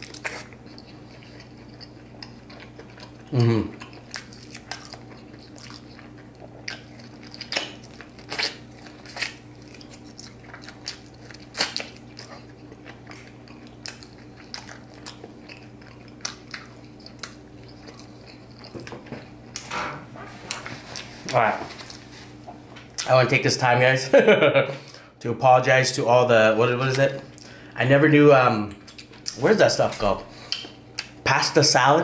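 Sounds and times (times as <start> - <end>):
person chewing crunchy food: 0.0 - 19.7, 20.3 - 23.1, 28.7 - 31.2
low steady hum: 0.0 - 32.0.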